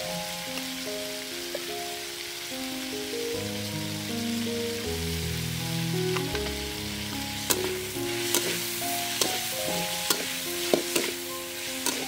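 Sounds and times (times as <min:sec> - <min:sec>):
background music: 0:00.0 - 0:12.0
chicken sizzling in a wok: 0:00.0 - 0:12.0
ladle scraping and knocking pan: 0:07.5 - 0:11.2, 0:11.8 - 0:12.0.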